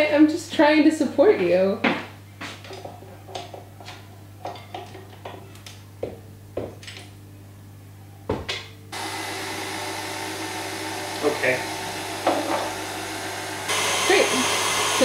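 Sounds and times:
stand mixer whisking cream: 9.0s - 15.0s
mixer head knock: 12.0s - 12.9s.

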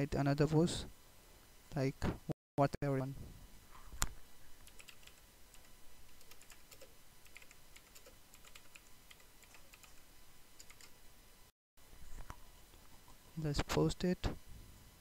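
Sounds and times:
typing on computer keyboard: 4.6s - 10.0s, 10.6s - 10.9s.

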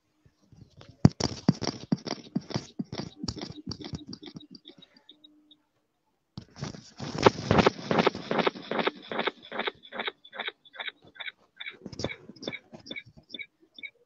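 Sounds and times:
computer keyboard typing: 1.2s - 5.1s.

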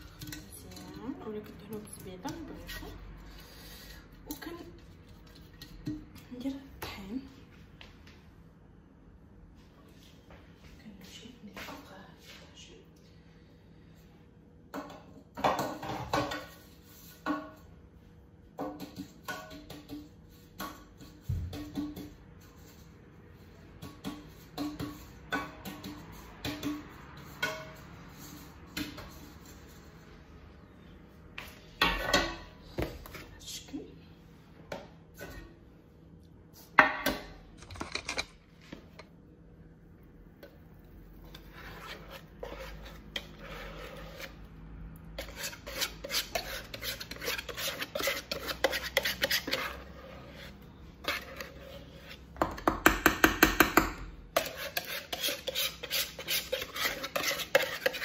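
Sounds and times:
batter scraped from bowl: 41.0s - 52.4s, 54.4s - 58.0s.

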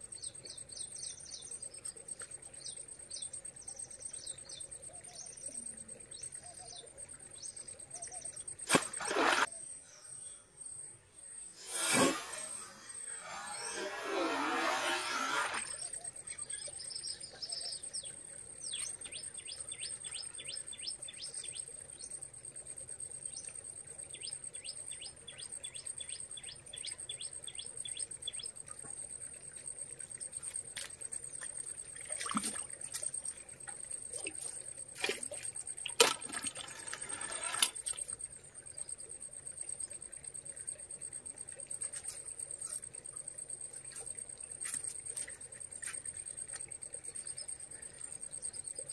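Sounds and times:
noisy bursts: 11.6s - 15.8s
high-pitched whine: 11.6s - 15.9s.

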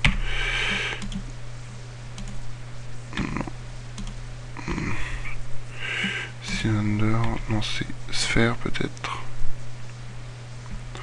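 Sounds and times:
steady low hum: 0.0s - 11.0s
computer keyboard clicking: 1.0s - 1.2s, 2.2s - 2.4s.

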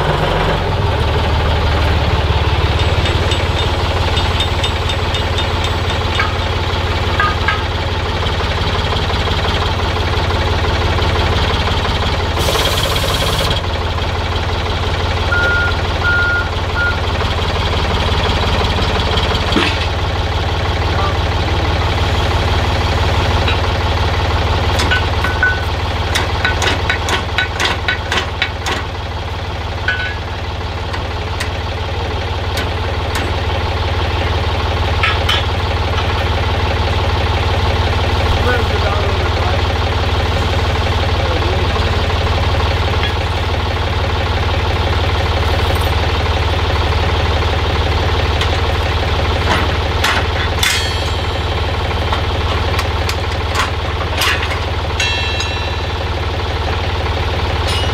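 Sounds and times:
forklift engine idling: 0.0s - 57.9s.

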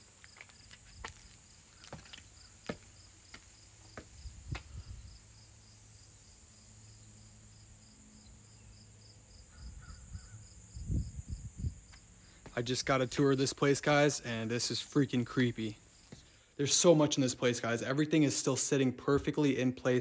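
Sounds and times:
footsteps on concrete steps: 0.0s - 4.9s, 11.9s - 13.8s, 15.4s - 16.4s
crickets chirping: 0.0s - 16.6s.

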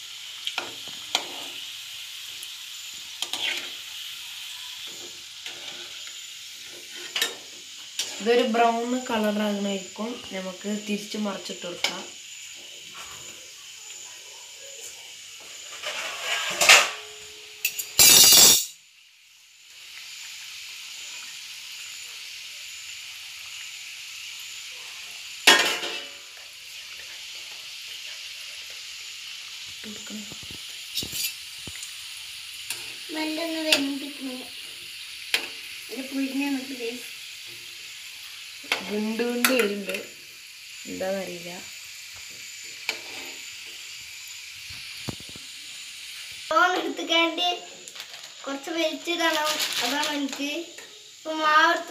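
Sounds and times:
oil sizzling: 0.0s - 51.9s
metal spoon clinking: 17.6s - 18.8s, 31.0s - 31.4s.

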